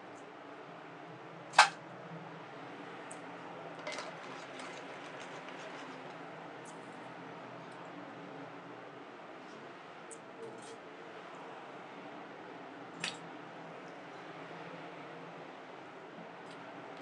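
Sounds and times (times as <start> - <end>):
pot boiling on gas burner: 0.0 - 14.2
sharp click: 1.6 - 1.8.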